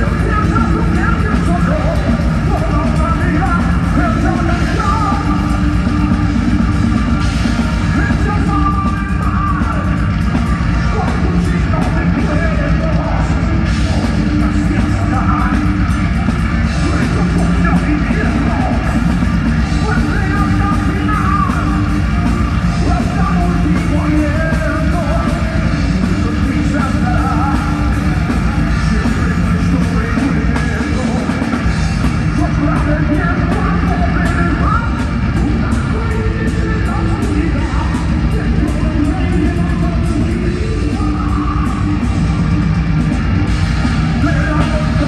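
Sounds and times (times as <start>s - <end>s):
distorted electric guitars: 0.0s - 45.0s
drums: 0.0s - 45.0s
person singing: 7.3s - 15.9s, 16.6s - 31.5s, 32.1s - 42.5s.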